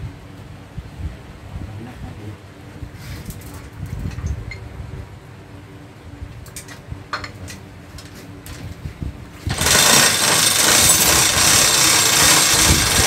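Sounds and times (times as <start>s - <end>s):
metal parts clinking and knocking: 9.5s - 13.0s.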